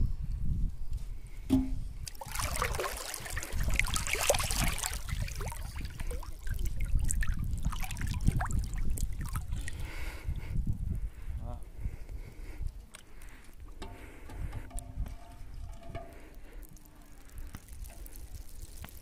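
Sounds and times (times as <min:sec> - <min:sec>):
river water sloshing and splashing: 0:02.0 - 0:09.7.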